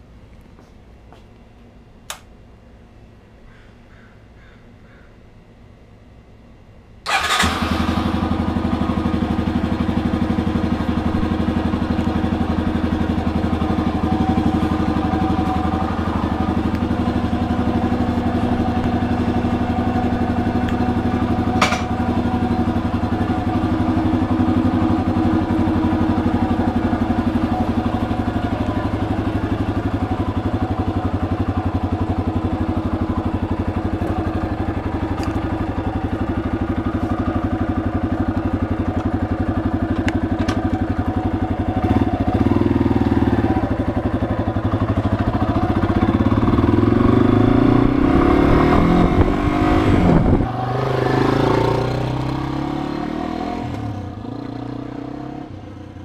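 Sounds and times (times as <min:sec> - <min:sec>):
sharp click: 0:02.1 - 0:02.3
motorcycle engine idling and revving: 0:07.0 - 0:56.0.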